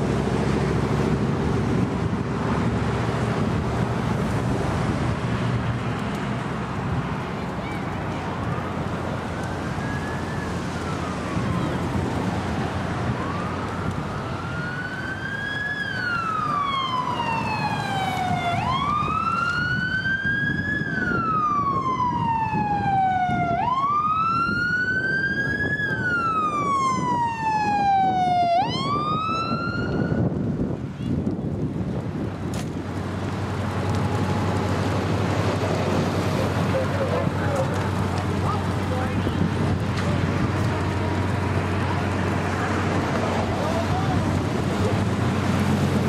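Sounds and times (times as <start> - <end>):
emergency siren wailing: 8.3 - 30.8, 33.3 - 46.0.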